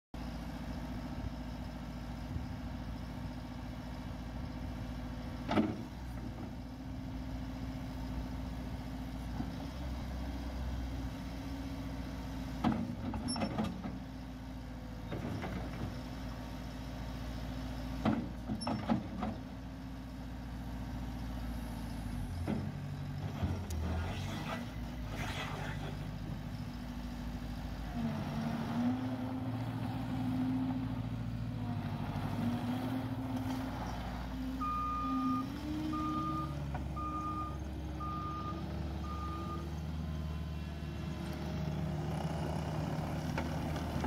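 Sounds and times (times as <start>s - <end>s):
diesel engine running: 0.2s - 44.0s.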